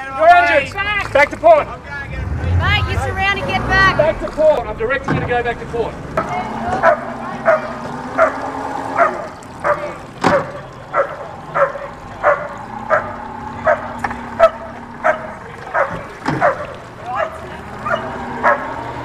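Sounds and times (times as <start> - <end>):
dog barking: 6.8 - 18.8.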